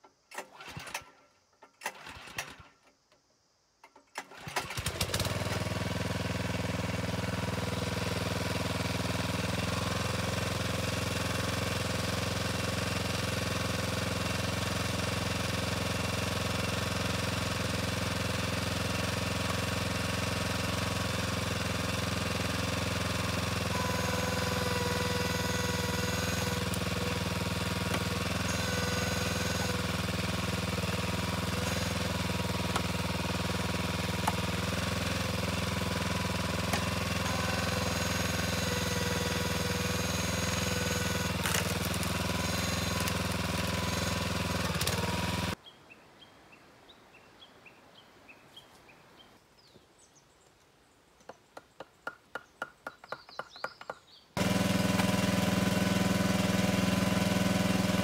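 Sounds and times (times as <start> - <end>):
log splitter engine running: 4.2 - 45.6, 54.4 - 58.0
logs cracking: 41.2 - 42.3.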